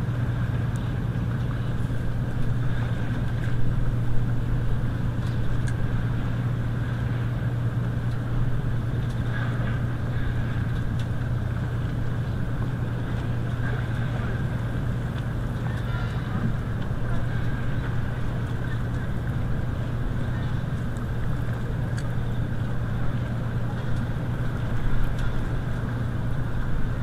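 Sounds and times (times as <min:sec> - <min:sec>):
low engine hum: 0:00.0 - 0:27.0.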